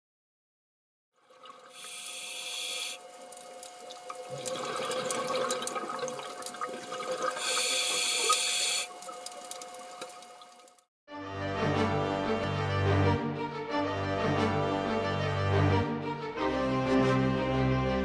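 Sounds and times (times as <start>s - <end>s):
diver inhaling through regulator: 1.7s - 3.0s, 7.3s - 9.0s
exhaled bubbles underwater: 3.8s - 10.6s.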